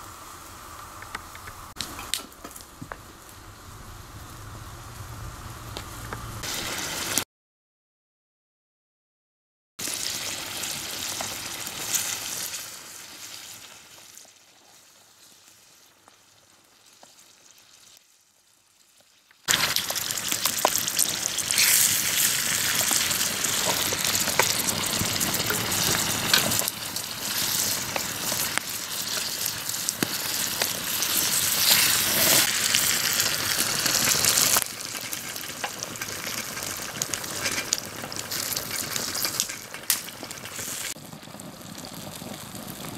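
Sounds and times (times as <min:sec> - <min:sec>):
burning wood crackling: 0:00.0 - 0:07.2, 0:19.0 - 0:42.9
tomato paste sizzling in frying pan: 0:09.8 - 0:42.9.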